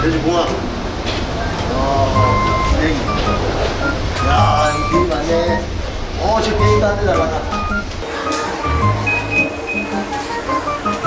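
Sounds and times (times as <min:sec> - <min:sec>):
light melody over bass line: 0:01.9 - 0:05.8, 0:06.6 - 0:08.0, 0:08.6 - 0:11.0.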